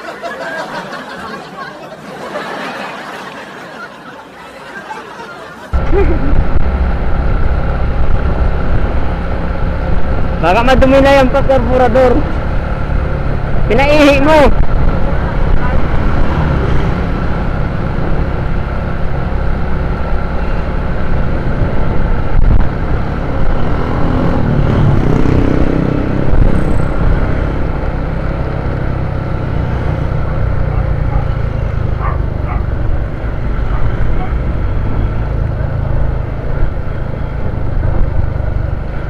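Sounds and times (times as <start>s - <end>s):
passing traffic: 0.0s - 39.0s
road rumble: 0.0s - 39.0s
motorcycle engine drone: 5.7s - 39.0s
wind noise: 14.4s - 28.2s.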